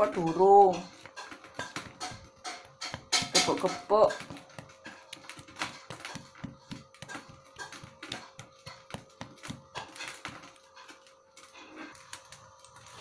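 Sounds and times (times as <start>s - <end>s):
pestle pounding in stone mortar: 0.0s - 10.6s.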